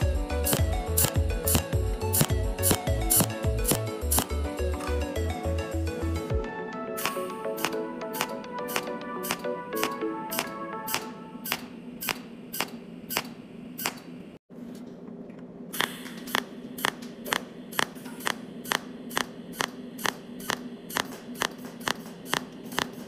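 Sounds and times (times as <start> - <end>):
steady low hum: 0.0 - 6.4, 7.0 - 23.0
welding machine snaps: 0.5 - 4.4, 7.0 - 14.1, 15.8 - 23.0.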